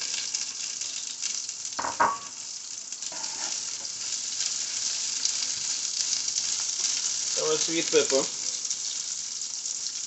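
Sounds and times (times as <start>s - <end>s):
vegetables sizzling in oil: 0.0s - 10.0s
utensil stirring vegetables: 2.9s - 10.0s.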